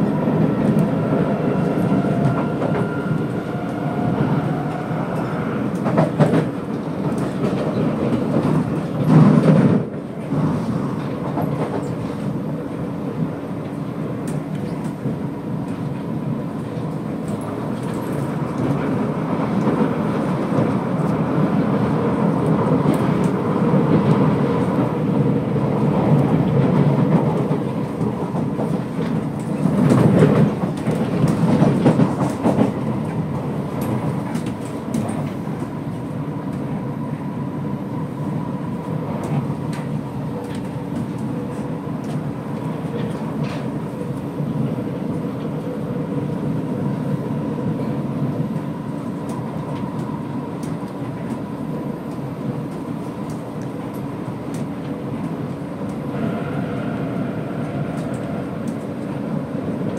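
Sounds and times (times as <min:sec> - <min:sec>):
train wheels rumbling on track: 0:00.0 - 0:59.9.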